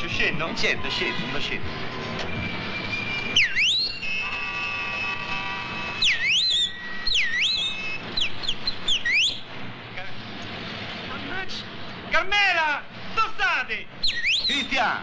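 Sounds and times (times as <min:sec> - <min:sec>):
person whistling loudly: 0:03.3 - 0:04.3, 0:06.0 - 0:09.4, 0:14.0 - 0:14.7.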